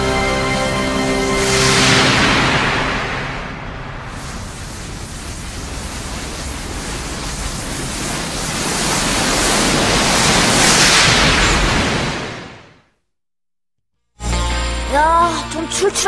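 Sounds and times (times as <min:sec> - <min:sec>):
cartoon energy blast rushing: 0:01.2 - 0:12.6.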